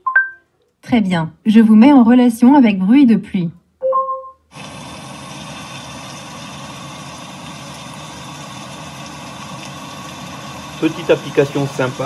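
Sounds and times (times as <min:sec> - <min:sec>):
smart speaker chime: 0:00.0 - 0:00.4, 0:03.8 - 0:04.4
recorded rain through a speaker: 0:04.6 - 0:12.0.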